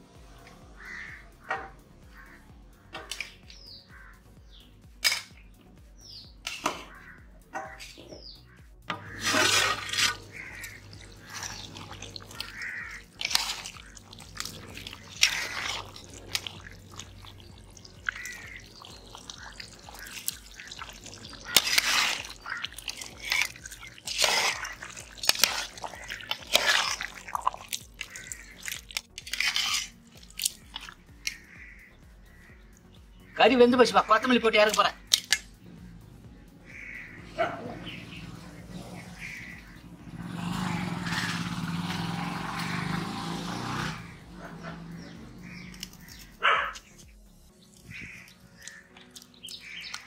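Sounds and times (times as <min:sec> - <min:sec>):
ladle scraping and stirring in pot: 0:06.5 - 0:07.0, 0:08.9 - 0:31.4, 0:34.7 - 0:35.5.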